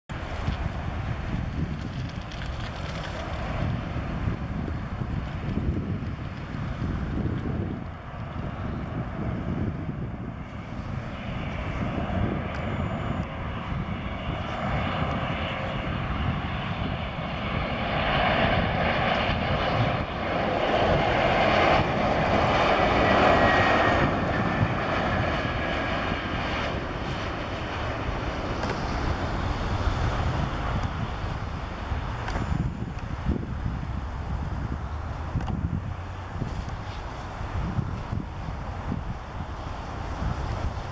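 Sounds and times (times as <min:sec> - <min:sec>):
jet engines rumbling: 0:00.1 - 0:40.9
faint falling whine: 0:11.5 - 0:13.9, 0:28.4 - 0:34.7.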